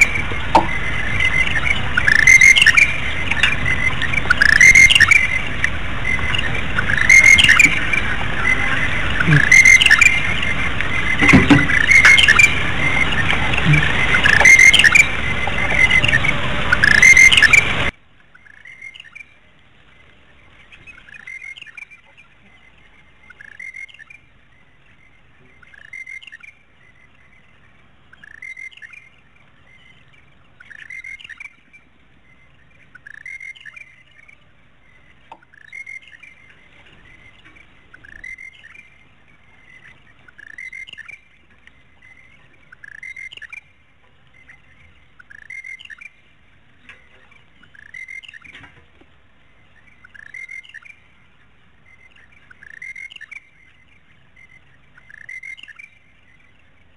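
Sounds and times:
bird whistling call: 0:06.9 - 0:07.9, 0:09.2 - 0:10.4.

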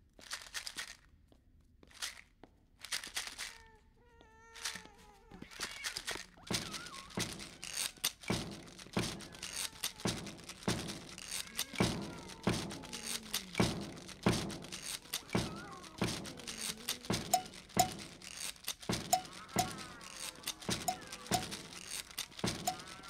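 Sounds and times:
faint sliding tones: 0:06.5 - 0:23.0
rhythmic percussion beat: 0:06.5 - 0:23.0.

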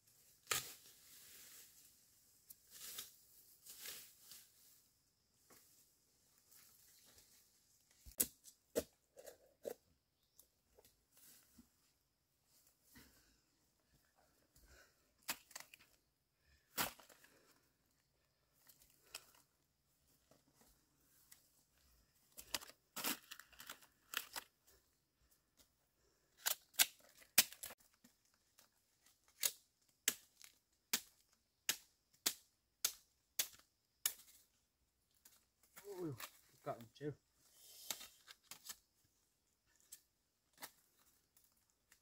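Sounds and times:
bamboo snapping and rustling: 0:00.4 - 0:01.4, 0:07.9 - 0:11.4, 0:15.2 - 0:17.5, 0:22.4 - 0:24.5, 0:26.4 - 0:36.6, 0:37.6 - 0:38.9, 0:39.7 - 0:42.0.

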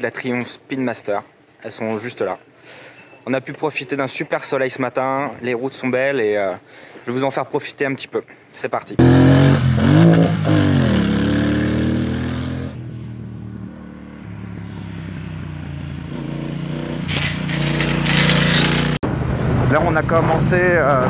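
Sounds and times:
motorcycle riding past: 0:09.0 - 0:19.7.

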